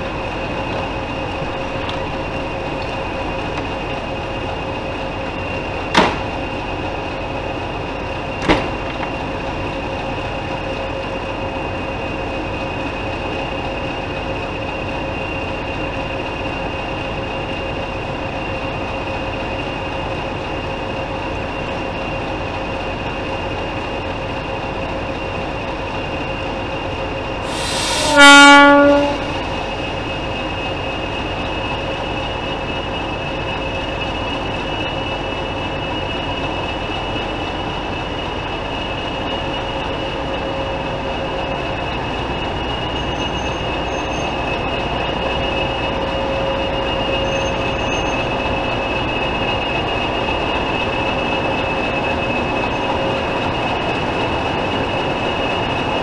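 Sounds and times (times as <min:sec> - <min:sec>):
rush of steam: 0:27.3 - 0:56.0
steam whistle blast: 0:27.5 - 0:29.4.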